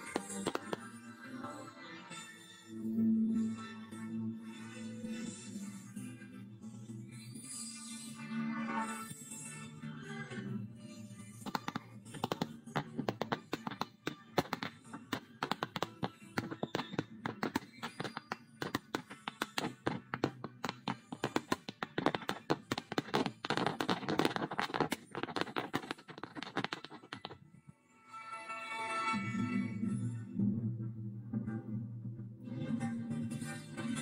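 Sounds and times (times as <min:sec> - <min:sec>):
fireworks crackling: 0:00.0 - 0:00.8, 0:11.5 - 0:27.4
fireworks launching and bursting: 0:00.0 - 0:00.9, 0:11.5 - 0:27.4.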